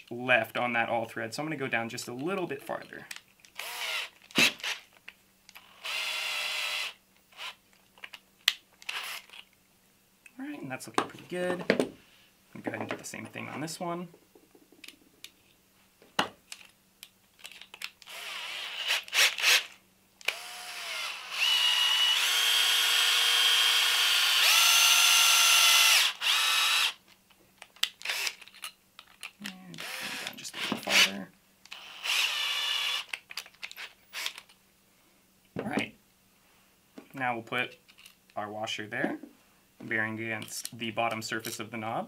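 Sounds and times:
cordless drill motor whine: 3.6 - 4.8, 5.6 - 7.6, 18.1 - 27.0, 29.8 - 31.1, 31.7 - 33.1.

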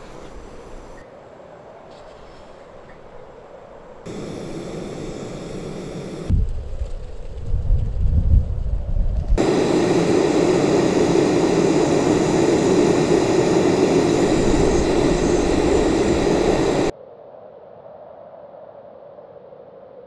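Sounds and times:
gas stove burner hissing: 0.0 - 1.0, 4.1 - 6.3, 9.4 - 16.9
low rumble: 4.1 - 16.9.

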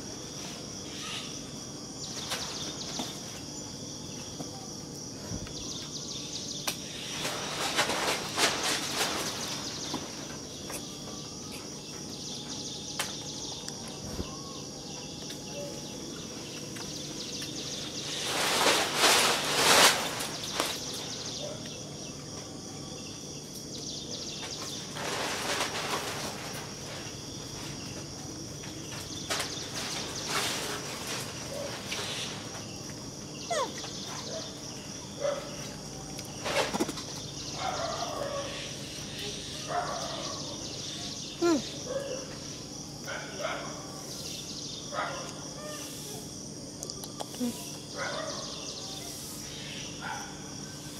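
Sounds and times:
rustling noise: 6.9 - 11.1, 16.5 - 21.3, 24.4 - 33.0, 35.7 - 37.3.

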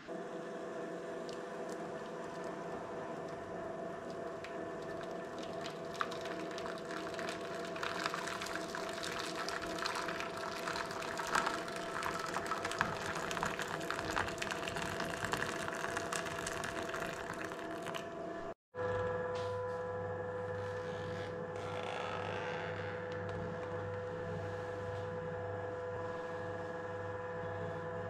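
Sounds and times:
steady hum: 0.0 - 21.7
water pouring into metal tray: 4.8 - 18.0.

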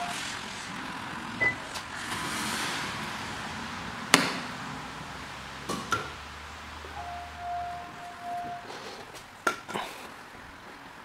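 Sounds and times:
brief high tone: 6.9 - 8.7.

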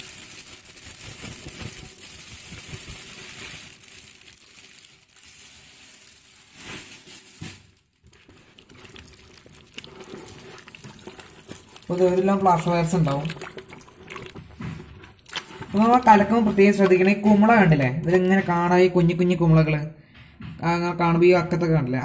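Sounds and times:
powder pouring into water: 0.0 - 6.5, 8.0 - 17.9
crinkly packet rustling: 0.0 - 18.2.

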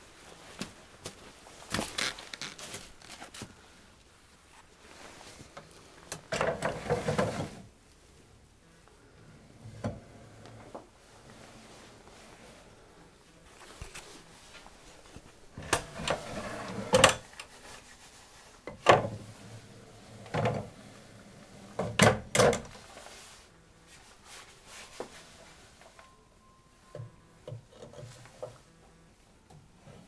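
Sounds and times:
wooden ladder sliding: 6.3 - 7.7, 15.6 - 17.3.

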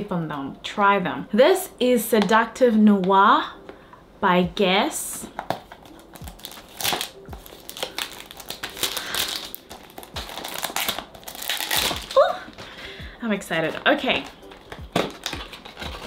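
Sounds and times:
plastic wrapping crinkling: 5.5 - 12.8, 13.5 - 16.0.

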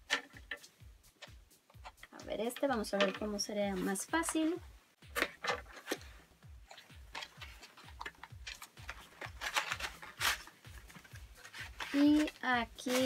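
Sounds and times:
cardboard packaging rustling: 3.7 - 13.0.

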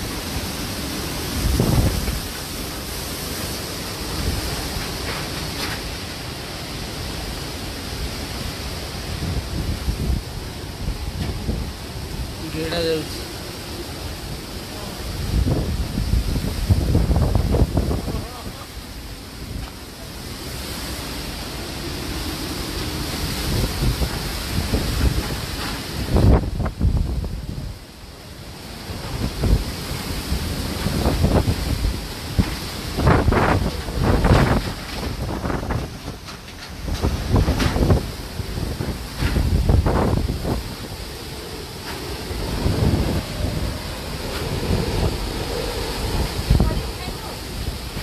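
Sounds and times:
wind buffeting microphone: 0.0 - 48.0
wind rushing: 0.0 - 48.0.

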